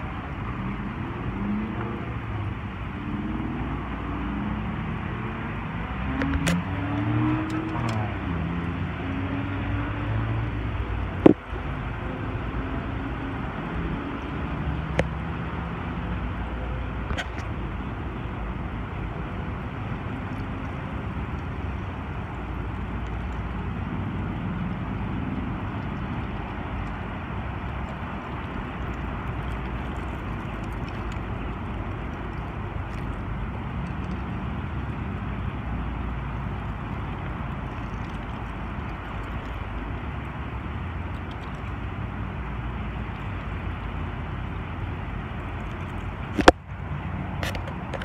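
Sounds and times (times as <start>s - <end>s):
outdoor background rush: 0.0s - 48.0s.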